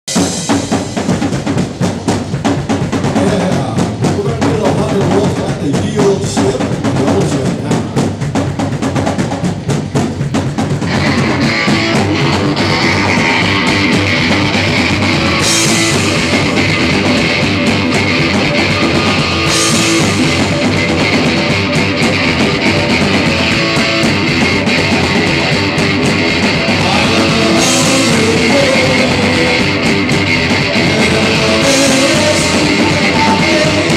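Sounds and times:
bass guitar: 0:00.0 - 0:33.9
drum kit: 0:00.0 - 0:33.9
distorted electric guitar: 0:00.1 - 0:33.9.

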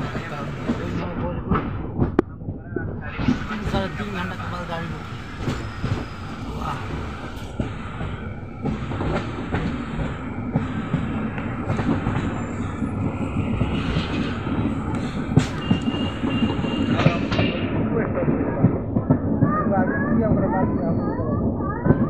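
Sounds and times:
train rumble: 0:00.0 - 0:22.0
wheels clicking on track: 0:03.2 - 0:19.6.

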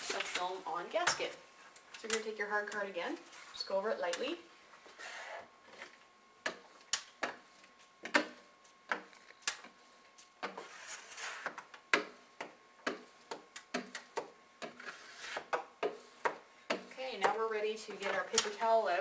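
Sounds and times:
card rubbing scrape: 0:04.9 - 0:05.5, 0:10.5 - 0:11.6, 0:14.8 - 0:16.2.

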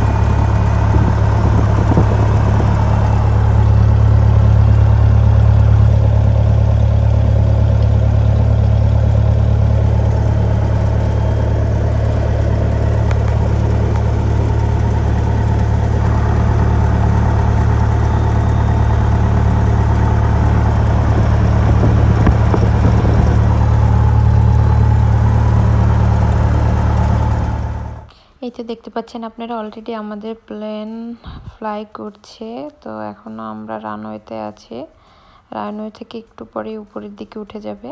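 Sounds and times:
small plane engine droning: 0:00.0 - 0:28.2.

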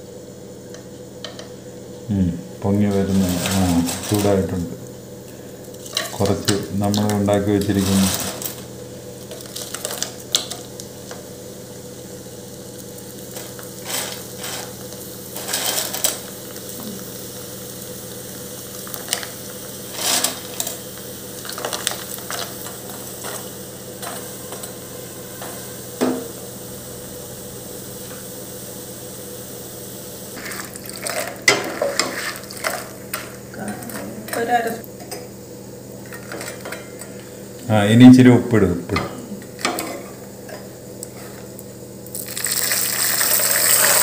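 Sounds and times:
deep-frying sizzle: 0:00.0 - 0:33.6, 0:39.4 - 0:44.0.

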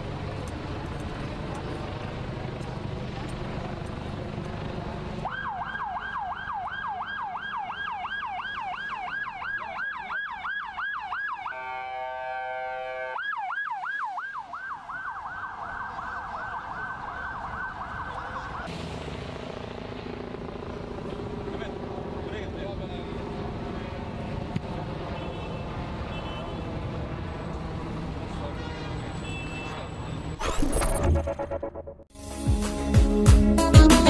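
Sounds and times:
street noise: 0:00.0 - 0:34.0
siren yelping: 0:05.3 - 0:18.7
electronic horn blast: 0:11.5 - 0:13.2.

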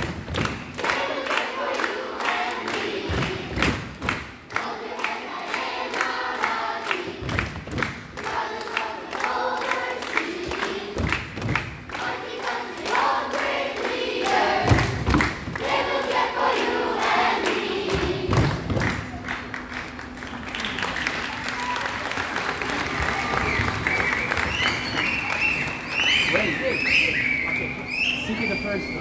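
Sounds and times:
children's choir singing: 0:00.0 - 0:18.9
rhythmic hand clapping: 0:00.0 - 0:27.8.

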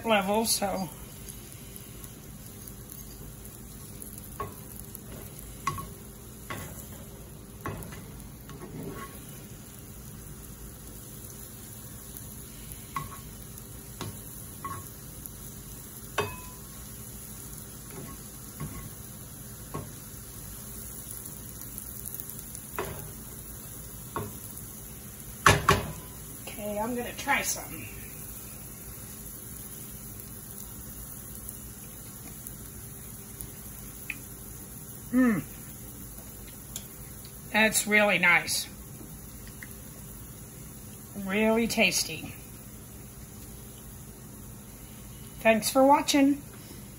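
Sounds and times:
mushrooms sizzling in a pan: 0:00.0 - 0:46.9
spatula knocking on a pan: 0:16.2 - 0:16.6.

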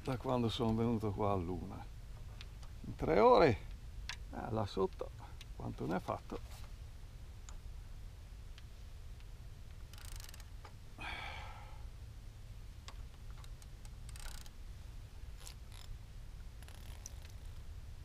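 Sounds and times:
fishing reel ticking and clicking: 0:09.9 - 0:10.5, 0:13.4 - 0:14.5.

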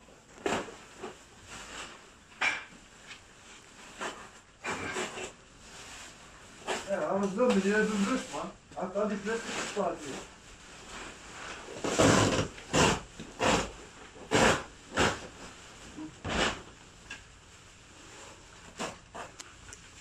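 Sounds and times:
carpet scraping on concrete: 0:10.9 - 0:15.3.

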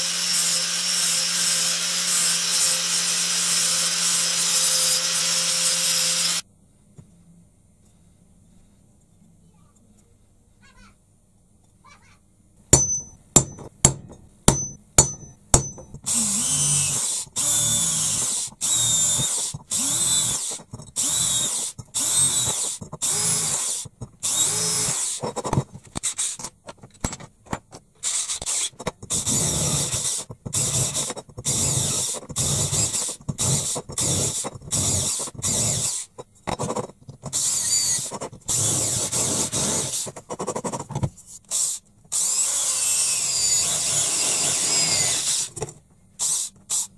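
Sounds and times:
electric drill boring metal: 0:00.0 - 0:06.4, 0:16.1 - 0:25.2, 0:37.4 - 0:40.1, 0:41.5 - 0:45.6, 0:46.2 - 0:46.9
hammer striking metal punch: 0:12.7 - 0:16.0.

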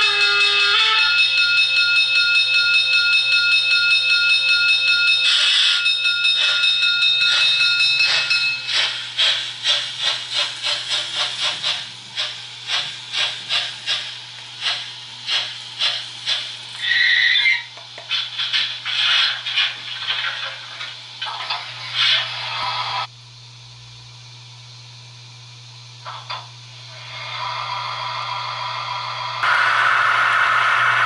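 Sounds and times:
steam chuffing: 0:05.2 - 0:20.5.

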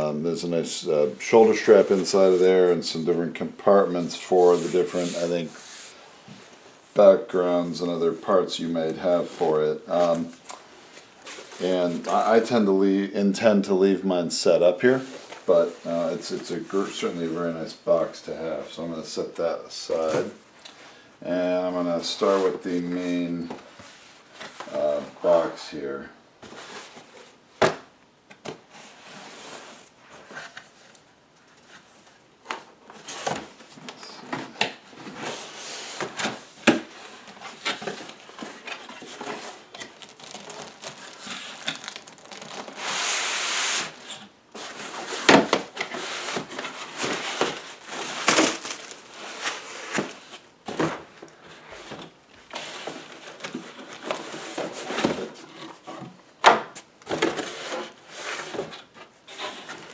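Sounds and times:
foam and plastic packing crinkling: 0:35.0 - 0:56.0.

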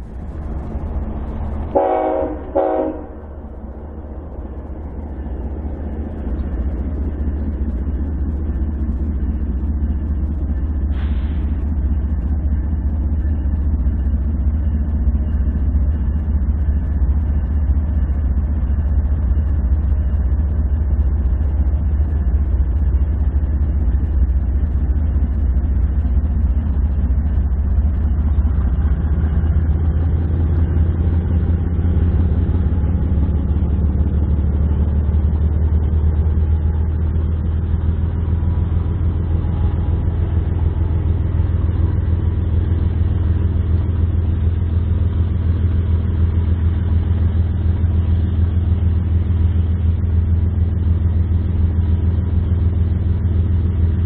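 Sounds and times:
diesel locomotive engine drone: 0:00.0 - 0:54.0.

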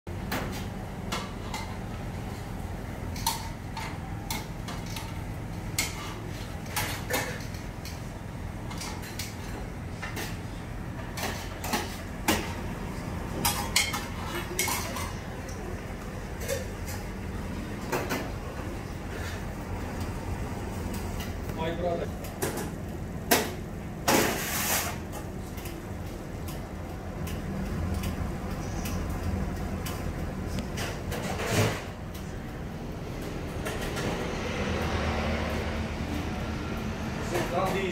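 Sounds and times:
steady low hum: 0:00.1 - 0:37.3
utensils clinking on plates: 0:03.1 - 0:10.4, 0:11.0 - 0:12.6, 0:13.4 - 0:17.2.

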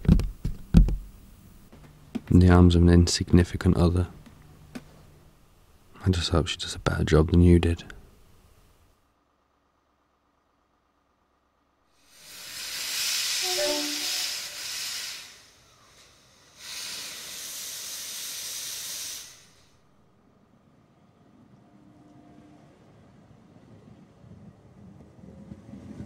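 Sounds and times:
steam locomotive hissing: 0:12.0 - 0:19.8.

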